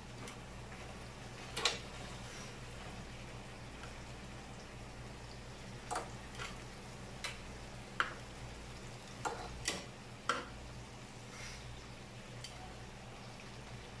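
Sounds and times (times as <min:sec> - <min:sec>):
low steady hum: 0:00.0 - 0:14.0
metal tongs clicking on grill pan: 0:07.2 - 0:07.4, 0:09.2 - 0:10.5.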